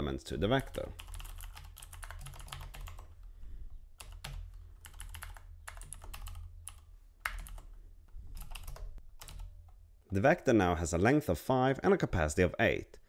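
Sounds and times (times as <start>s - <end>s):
computer keyboard typing: 0.6s - 3.2s, 4.0s - 9.8s.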